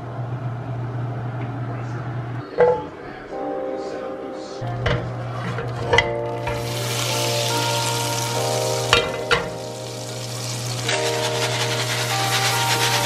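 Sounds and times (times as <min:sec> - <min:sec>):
butter sizzling in a pan: 0:06.4 - 0:13.0.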